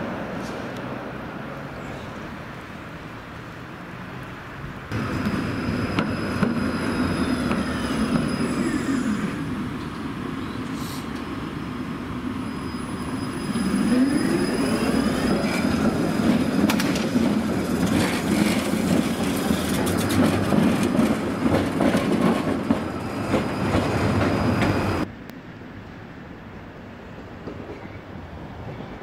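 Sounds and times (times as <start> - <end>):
tram motor whine: 4.9 - 25.1
wheels clicking over rail joints: 15.1 - 25.1.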